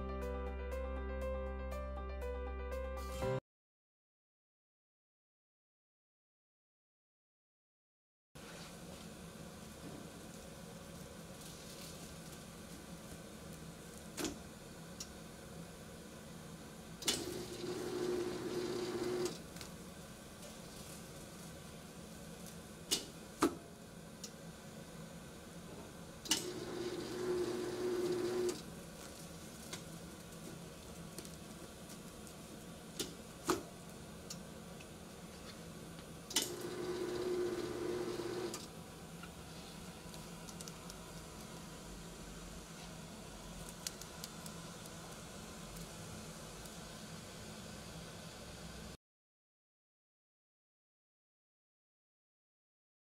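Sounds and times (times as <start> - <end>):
steady electric hum: 8.8 - 49.0
steady sealing buzz: 17.0 - 19.4, 26.3 - 28.7, 36.4 - 38.7.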